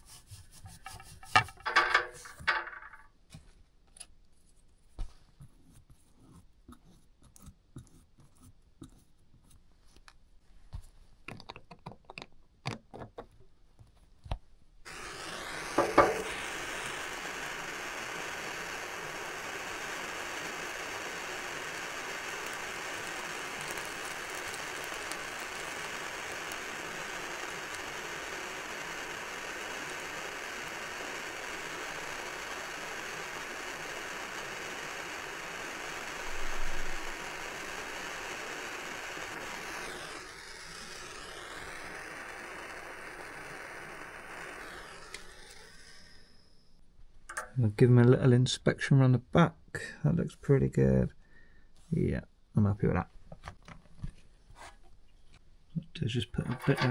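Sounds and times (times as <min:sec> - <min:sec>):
handling clicks and knocks: 0:11.2 - 0:14.5
blowtorch lighting pop: 0:14.9 - 0:46.2, 0:56.4 - 0:56.9
blowtorch hissing: 0:14.9 - 0:46.6, 0:56.4 - 0:56.9.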